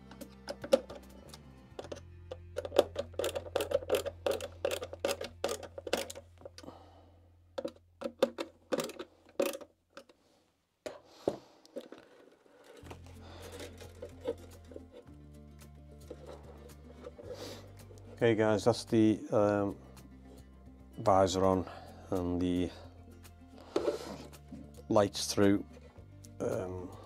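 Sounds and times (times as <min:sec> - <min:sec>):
quiet background music: 0:00.0 - 0:09.7, 0:12.0 - 0:27.0
plastic clicks and taps: 0:07.6 - 0:10.2.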